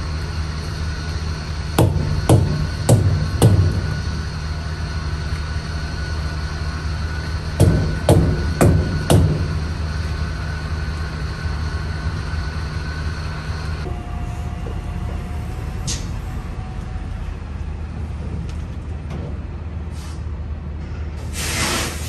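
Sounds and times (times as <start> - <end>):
diesel truck engine idling: 0.0 - 20.7
air brakes hissing: 15.4 - 16.4, 19.8 - 22.0.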